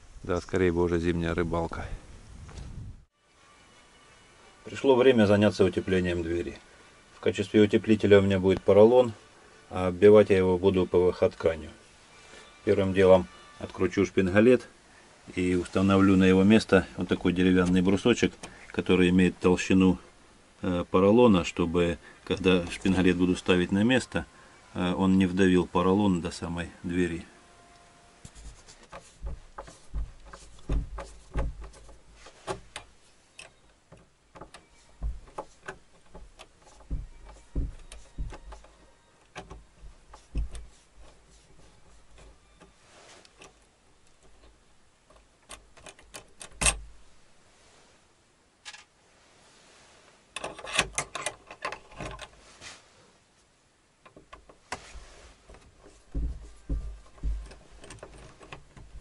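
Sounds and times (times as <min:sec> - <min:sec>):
screwdriver clicking on metal: 0:34.4 - 0:42.7.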